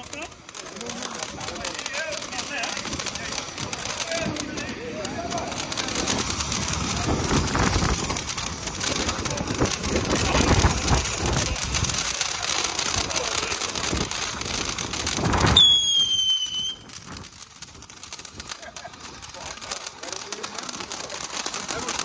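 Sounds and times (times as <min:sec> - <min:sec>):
firework hissing and crackling: 0:00.0 - 0:22.0
high falling whistle: 0:15.5 - 0:16.9.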